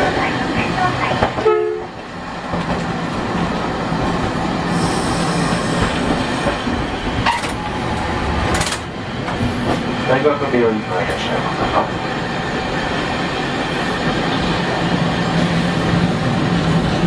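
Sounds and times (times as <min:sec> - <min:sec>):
streetcar wheels and motor rumble: 0:00.0 - 0:17.0
high hiss: 0:04.6 - 0:06.4.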